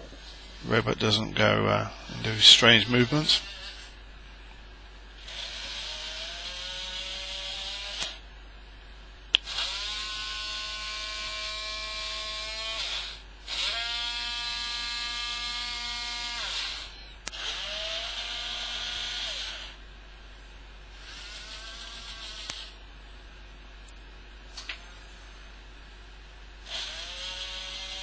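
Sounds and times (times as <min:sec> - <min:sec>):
robot arm motors whining: 0:05.2 - 0:08.2, 0:09.4 - 0:19.8, 0:20.9 - 0:22.8, 0:26.6 - 0:28.0.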